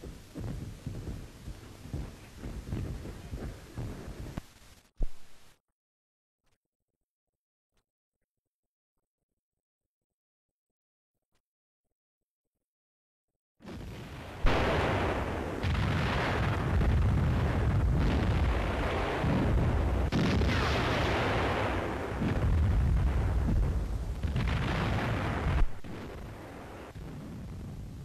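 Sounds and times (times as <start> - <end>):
artillery booms: 13.6 - 28.0.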